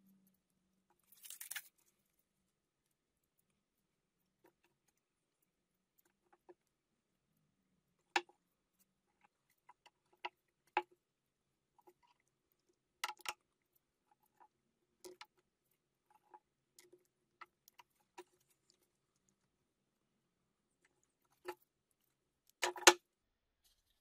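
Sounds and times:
small metal parts clicking: 1.0s - 1.9s.

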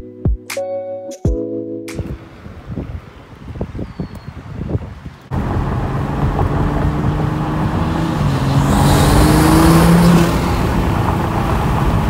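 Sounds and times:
wind and road noise: 2.0s - 12.0s
car engine accelerating: 5.3s - 12.0s.

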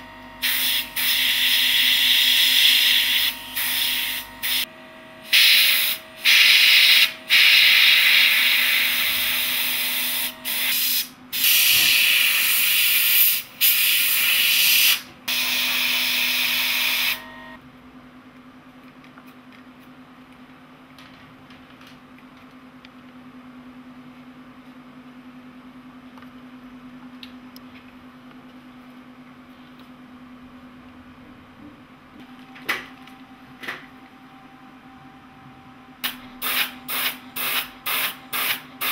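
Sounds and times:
airbrush hissing: 0.4s - 4.7s, 5.3s - 15.0s
low steady hum: 17.2s - 38.8s.

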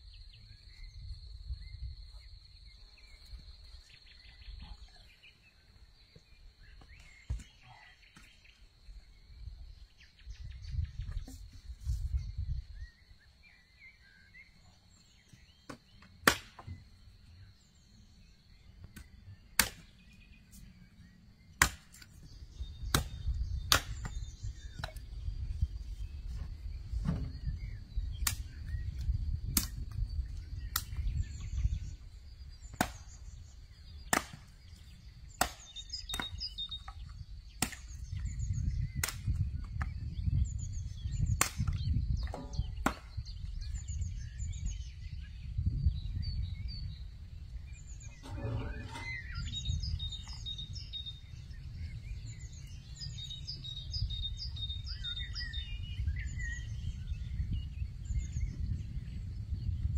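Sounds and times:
sharp chopping strikes: 15.7s - 16.7s, 19.0s - 19.9s, 21.6s - 22.0s.

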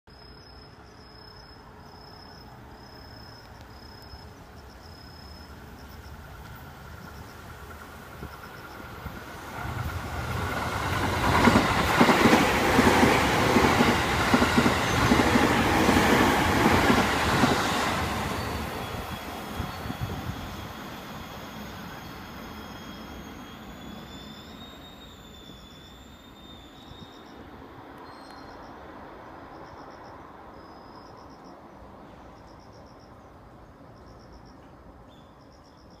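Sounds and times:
crickets chirping: 0.1s - 36.0s
train rushing past: 4.5s - 32.8s
train wheels clattering on rails: 6.4s - 20.9s.

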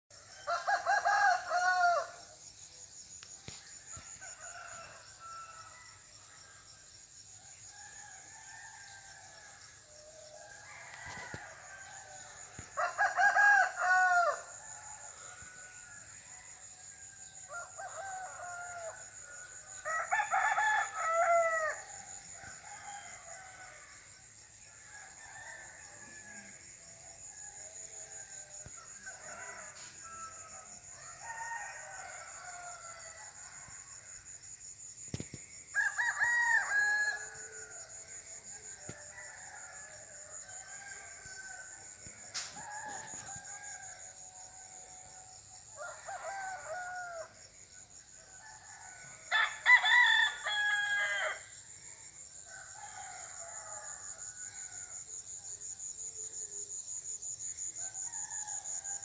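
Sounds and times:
roosters crowing: 0.4s - 2.3s, 7.6s - 34.3s, 35.1s - 47.5s, 48.2s - 51.7s.

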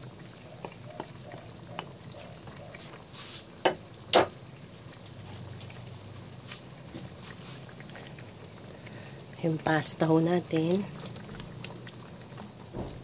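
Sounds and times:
sauce simmering and sputtering: 0.0s - 13.0s
wooden spatula knocking: 0.6s - 1.2s.

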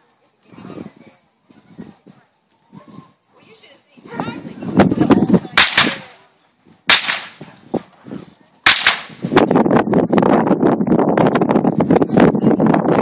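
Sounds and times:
blank gunshots: 5.6s - 6.1s, 6.9s - 7.4s, 8.7s - 9.3s
dense crackling: 6.9s - 7.4s, 8.7s - 9.4s.

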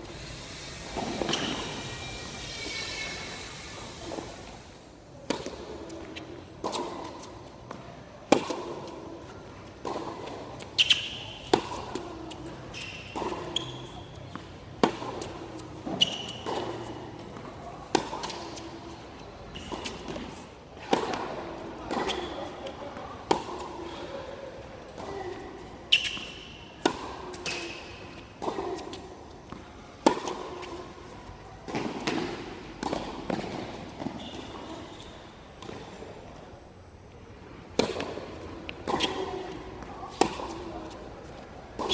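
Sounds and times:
tennis balls bouncing on hard court: 5.2s - 24.0s, 24.8s - 35.0s, 37.6s - 41.9s
tennis balls struck by rackets: 5.2s - 35.0s, 37.6s - 41.9s.

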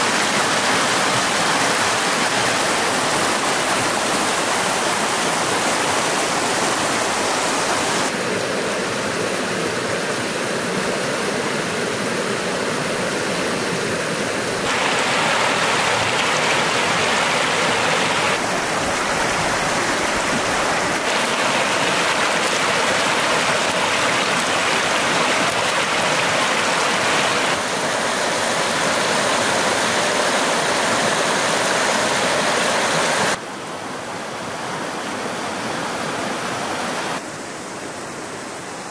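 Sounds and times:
stream rushing over rocks: 0.0s - 38.9s.

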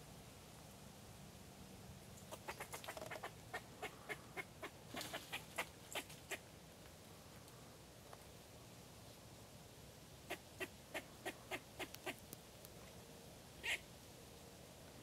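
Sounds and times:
squirrel alarm barks: 13.6s - 13.8s.

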